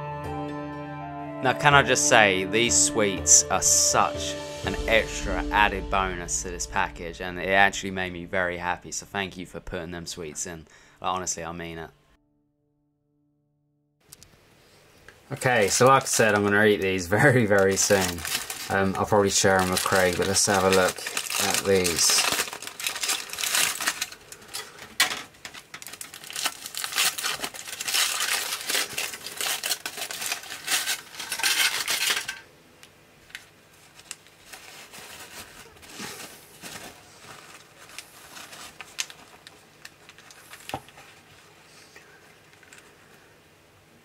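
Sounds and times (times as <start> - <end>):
plastic wrapping crinkling: 15.3 - 32.4, 33.2 - 41.4.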